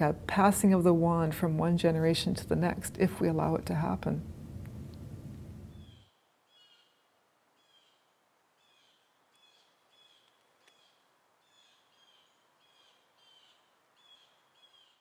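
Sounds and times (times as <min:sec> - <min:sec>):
soft hiss: 0:00.0 - 0:14.7
faint bird chirps: 0:05.7 - 0:15.0.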